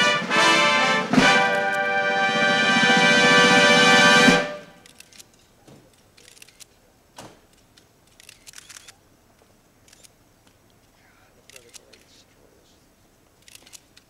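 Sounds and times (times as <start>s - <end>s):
brass band chord: 0.0s - 4.8s
camera shutters clicking: 4.8s - 6.7s, 7.5s - 9.0s, 9.8s - 10.2s, 11.5s - 12.1s, 13.4s - 14.0s.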